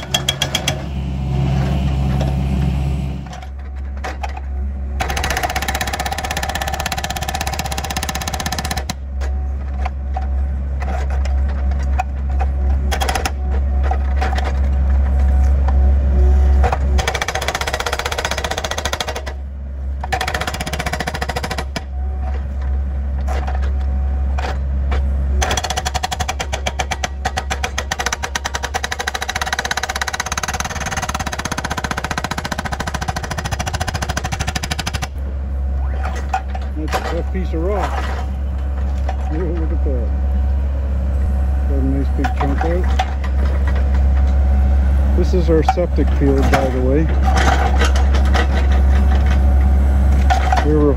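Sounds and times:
hydraulic hammer pounding rock: 0:00.0 - 0:01.0, 0:05.0 - 0:09.0, 0:16.6 - 0:19.4, 0:20.0 - 0:21.9, 0:24.4 - 0:35.2.

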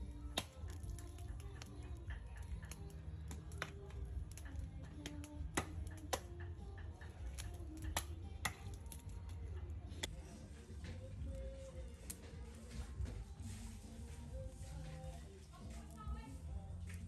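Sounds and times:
wood fire crackling and popping: 0:00.0 - 0:13.3.

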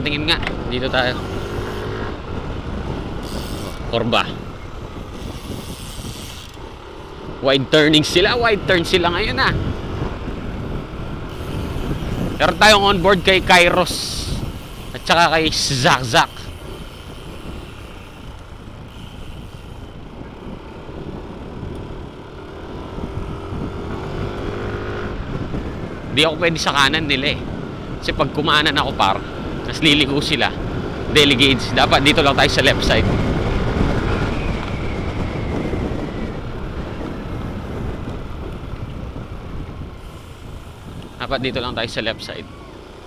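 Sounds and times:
motorcycle engine running: 0:00.0 - 0:28.0
wind rumbling on microphone: 0:00.0 - 0:43.0.

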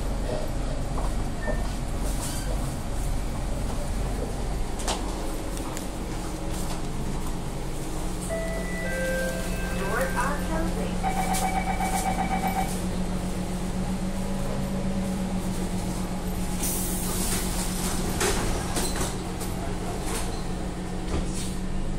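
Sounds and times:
stationary train hum: 0:00.0 - 0:21.9
door-closing warning beep: 0:08.3 - 0:10.4, 0:11.0 - 0:12.8.

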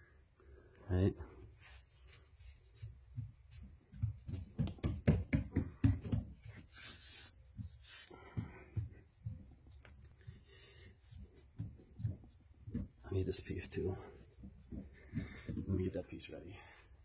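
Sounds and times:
hands rubbing foam pad: 0:01.5 - 0:04.9, 0:05.8 - 0:16.0
hands patting foam pad: 0:01.6 - 0:16.0.

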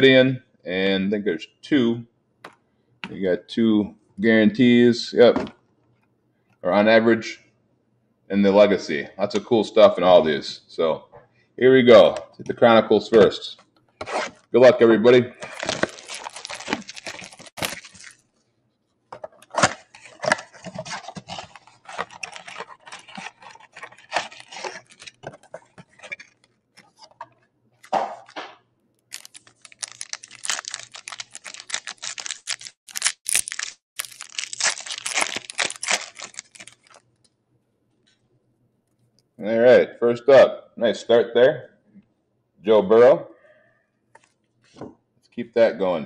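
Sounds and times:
wrappers tearing and crinkling: 0:15.4 - 0:18.3, 0:19.4 - 0:26.4, 0:29.1 - 0:37.0.

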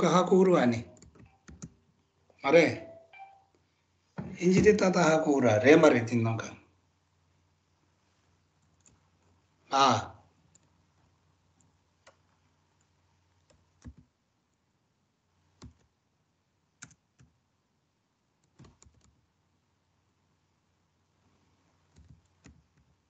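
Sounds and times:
faint keyboard keystrokes: 0:13.5 - 0:14.1, 0:18.4 - 0:19.2, 0:21.9 - 0:23.0.

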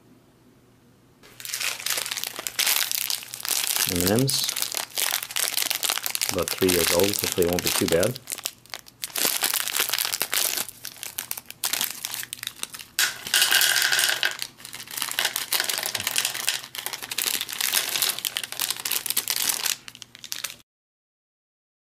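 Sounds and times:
plastic wrapper crinkling and tearing: 0:01.2 - 0:13.3, 0:14.2 - 0:20.6
candies tipped into plastic tray: 0:13.0 - 0:18.2.

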